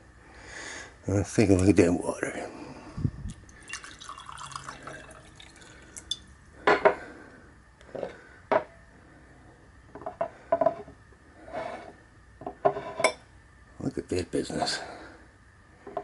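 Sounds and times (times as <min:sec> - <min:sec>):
water dripping and trickling: 0:03.5 - 0:06.2.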